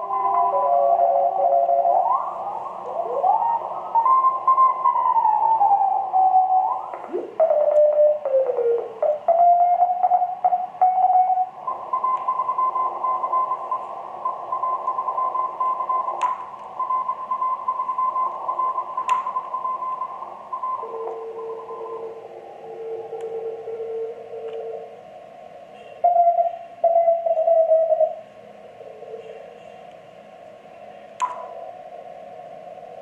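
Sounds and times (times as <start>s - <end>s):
steady radio tone: 0.0s - 33.0s
morse code tone: 6.0s - 24.9s
radio band hiss: 11.5s - 33.0s
sharp clicks: 16.2s - 16.7s, 19.0s - 19.3s.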